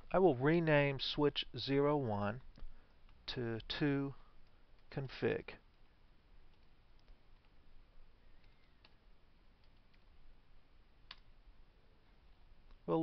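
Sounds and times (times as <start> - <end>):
faint keyboard clicks: 5.7 - 7.6, 8.4 - 9.0, 9.6 - 10.2, 11.1 - 11.3.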